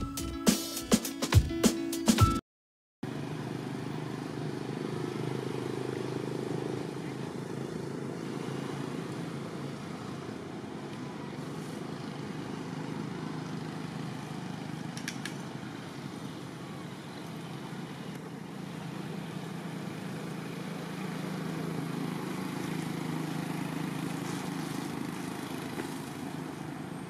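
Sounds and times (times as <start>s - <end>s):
faint clicks: 14.9s - 15.4s.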